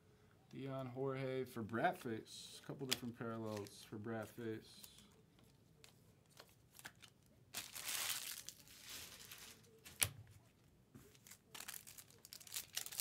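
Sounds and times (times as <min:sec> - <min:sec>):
foil wrappers crinkling: 0:06.3 - 0:10.0, 0:11.1 - 0:13.0.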